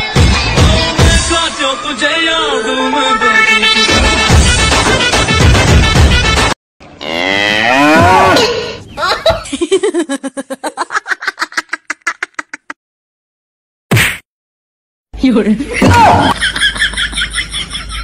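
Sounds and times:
music: 0.0 - 6.6
cow mooing: 7.0 - 8.4.

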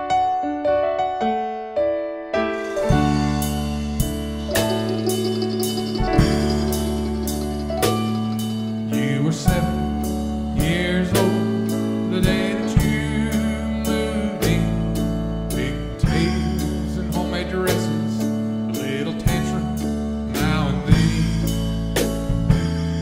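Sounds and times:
keyboard: 0.0 - 23.0
drum kit steady beat: 2.6 - 13.5, 20.4 - 23.0
strummed acoustic guitar: 2.6 - 14.0.

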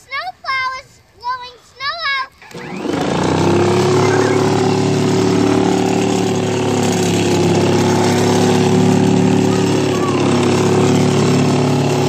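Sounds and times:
snow blower running: 2.4 - 12.0.

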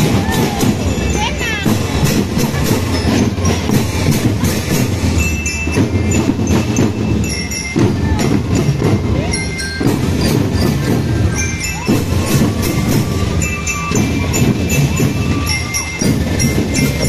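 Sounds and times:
hand cymbals clashing: 0.0 - 17.0
high bell-lyre notes: 0.0 - 17.0
marching drums beating: 0.0 - 17.0.

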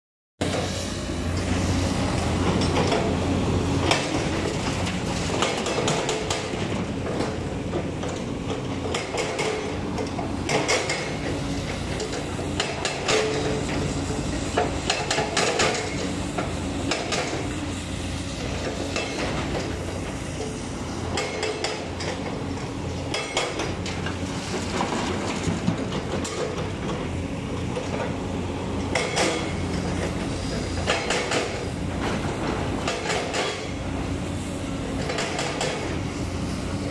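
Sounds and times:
excavator diesel engine: 0.4 - 36.9.

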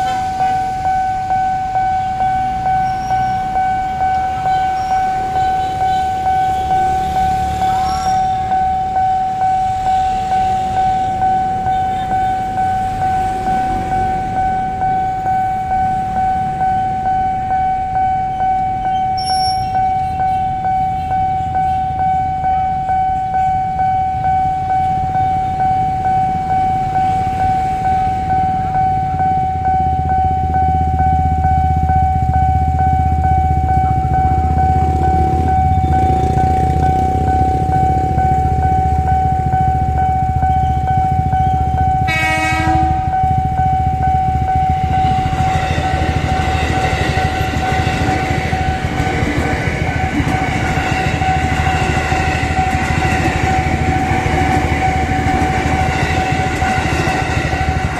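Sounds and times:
level crossing alarm ringing: 0.0 - 57.9
train passing: 0.0 - 57.9
train rumbling: 0.0 - 57.9
train horn blast: 42.0 - 43.4.

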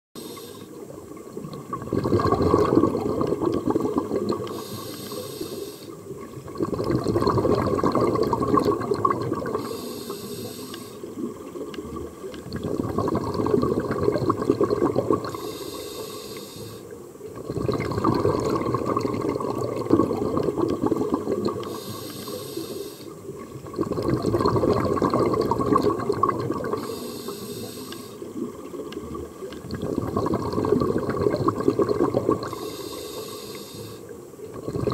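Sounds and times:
regulator inhale hiss: 0.2 - 0.9, 4.4 - 6.0, 9.5 - 11.1, 15.3 - 17.0, 21.6 - 23.2, 26.7 - 28.3, 32.4 - 34.2
exhaled air bubbling: 0.2 - 34.9.

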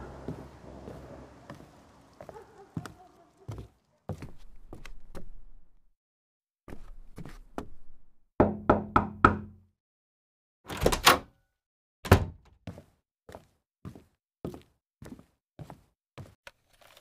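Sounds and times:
light footsteps: 0.0 - 5.3
knocking on a door: 8.4 - 9.6.

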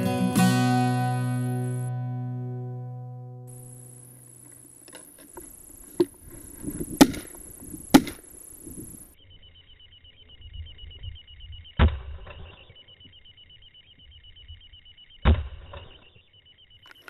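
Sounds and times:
shotgun shots: 7.9 - 8.2.

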